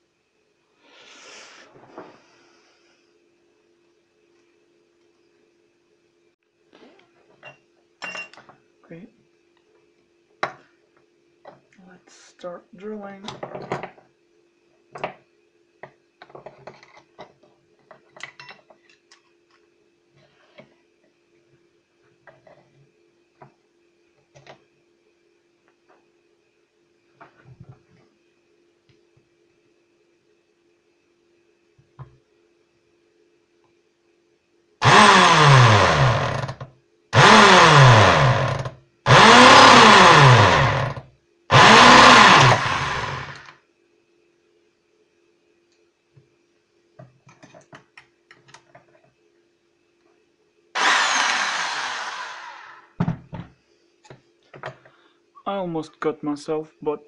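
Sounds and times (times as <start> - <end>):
electric drill drilling metal: 34.8 - 36.6, 37.2 - 43.5, 50.8 - 53.0
faint steady hum: 38.2 - 57.0
drill bit clicking and scraping metal: 50.8 - 52.6.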